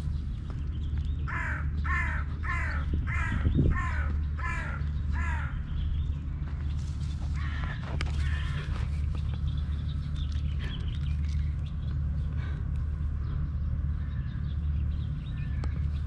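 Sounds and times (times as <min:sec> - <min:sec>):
low rumble: 0:00.0 - 0:16.0
crow cawing: 0:01.3 - 0:05.6, 0:07.4 - 0:08.7.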